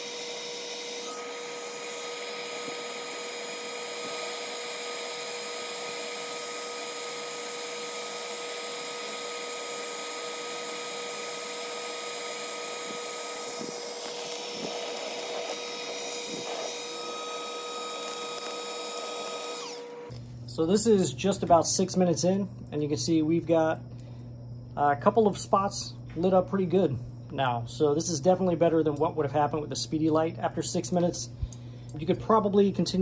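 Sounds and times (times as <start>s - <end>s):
motor whine: 0.0s - 21.7s
heat gun blower running: 0.0s - 22.2s.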